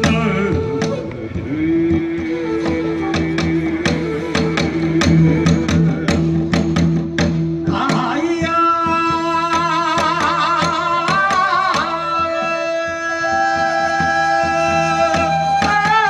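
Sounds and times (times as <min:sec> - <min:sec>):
bamboo flute long low note: 0:00.0 - 0:09.5, 0:12.0 - 0:16.0
barrel drum beat: 0:00.0 - 0:16.0.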